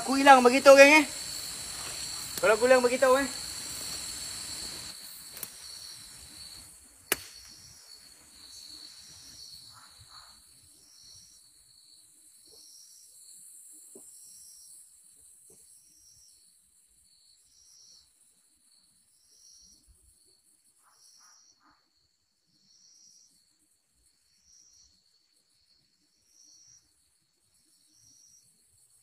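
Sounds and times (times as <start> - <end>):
insects trilling and chirping: 0.0 - 29.0
footsteps in leaf litter: 1.2 - 6.4
sharp click: 7.1 - 7.5.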